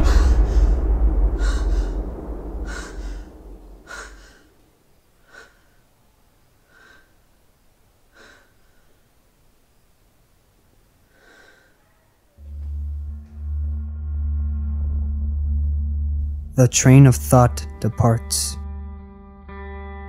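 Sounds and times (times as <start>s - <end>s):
low music drone: 0.0s - 4.4s, 12.4s - 20.0s
man breathing sharply: 0.0s - 4.6s, 6.7s - 7.2s, 11.1s - 11.8s.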